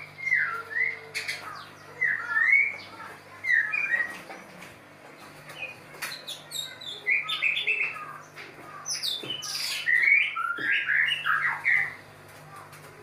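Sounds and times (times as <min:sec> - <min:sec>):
bird singing whistled phrases: 0:00.0 - 0:01.2, 0:01.9 - 0:02.9, 0:09.3 - 0:12.0.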